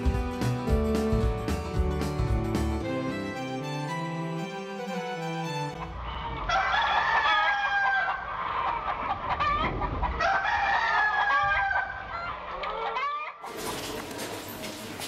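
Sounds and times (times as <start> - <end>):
rooster crowing: 5.8 - 13.4.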